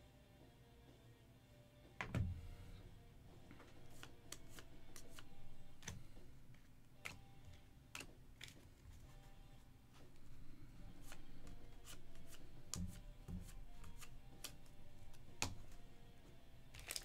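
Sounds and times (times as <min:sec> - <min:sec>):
trading cards clicking and tapping: 0:03.4 - 0:09.2, 0:10.0 - 0:16.0
foil packs rustling: 0:16.7 - 0:17.0.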